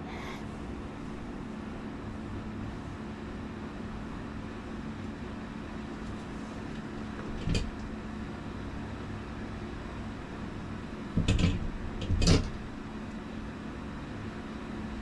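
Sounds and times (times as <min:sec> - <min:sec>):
steady low hum: 0:00.0 - 0:15.0
knocks and clatter: 0:11.2 - 0:12.6.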